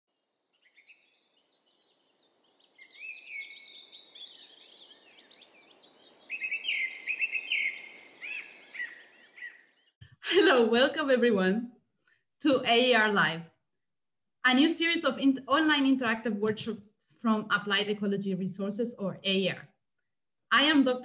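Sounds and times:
birds singing and calling: 0.2s - 10.0s.

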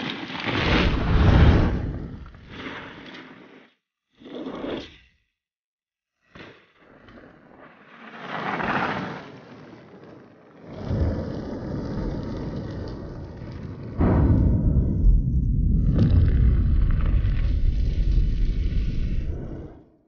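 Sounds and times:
deep rumble of fire: 0.6s - 2.5s, 10.5s - 20.0s
whoosh: 0.7s - 2.4s, 14.0s - 19.9s.

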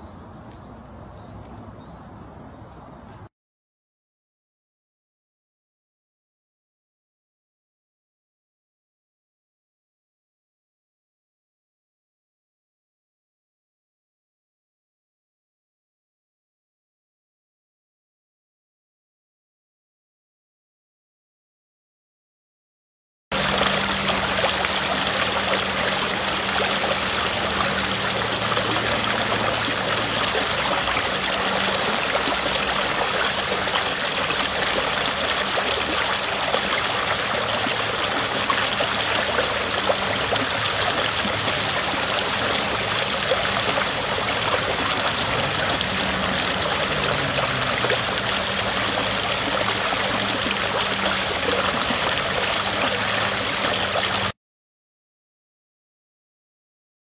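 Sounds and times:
stream splashing over rocks: 23.3s - 54.3s.

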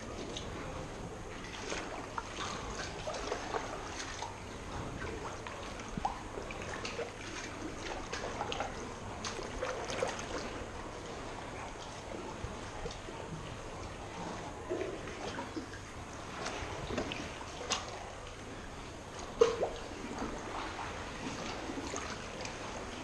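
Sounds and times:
steady low background noise: 0.0s - 23.0s
water splashing around kayak: 0.0s - 23.0s.

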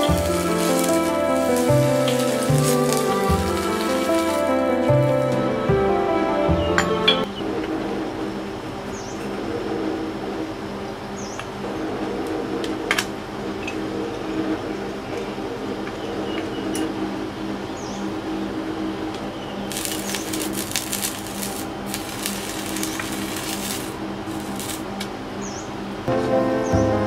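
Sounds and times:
crackling hiss: 0.0s - 5.6s, 19.2s - 25.6s
electric furnace humming: 0.0s - 26.1s.

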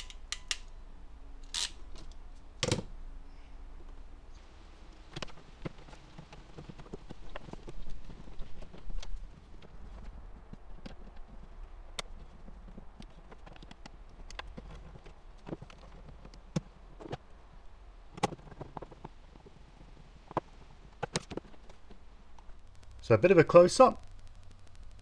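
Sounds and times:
screwdriver clicks and taps: 0.0s - 0.7s
steady low hum: 0.0s - 25.0s.

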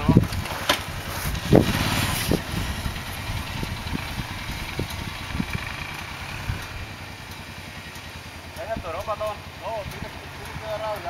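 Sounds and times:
atv engine low rumble: 0.0s - 11.0s.

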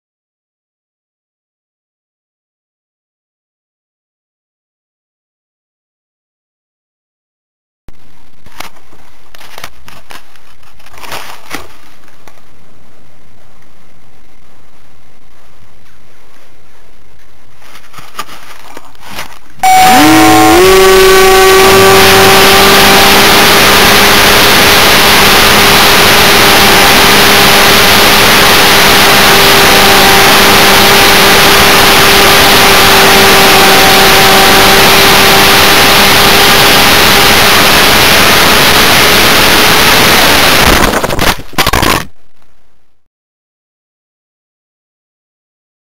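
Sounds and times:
electric model plane motor whine: 19.6s - 40.7s
model plane hitting the ground: 40.6s - 42.1s.

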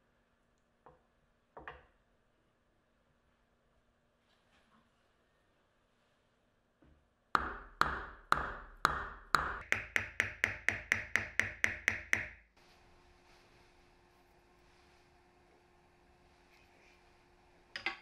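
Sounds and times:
mallet tapping metal pulley: 7.4s - 12.4s.

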